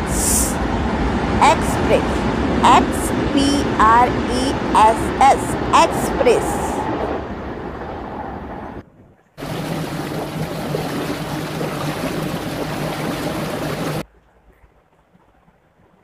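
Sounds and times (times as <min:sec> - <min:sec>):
train running: 0:00.0 - 0:08.8
boat engine hum: 0:00.0 - 0:16.0
wind: 0:00.0 - 0:16.0
rushing water: 0:09.4 - 0:16.0.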